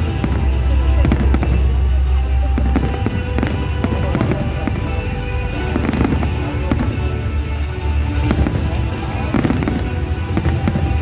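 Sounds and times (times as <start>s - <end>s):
deep low rumble: 0.0s - 11.0s
firework bangs and crackles: 0.0s - 11.0s
music: 0.0s - 11.0s.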